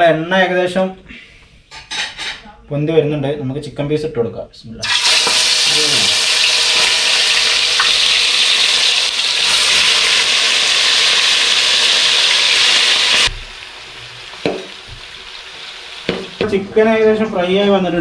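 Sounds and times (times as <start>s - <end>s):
chicken sizzling in hot oil: 4.8s - 16.6s.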